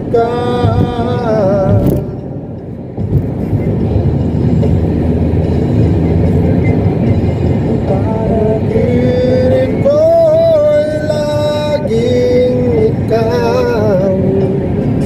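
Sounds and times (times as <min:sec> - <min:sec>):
music: 0:00.0 - 0:15.0
road and wind noise in car: 0:00.0 - 0:15.0.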